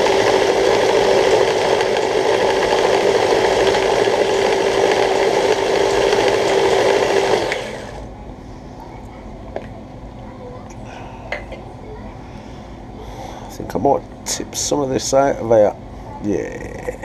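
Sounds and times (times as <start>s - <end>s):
electric food chopper humming: 0.0s - 8.1s.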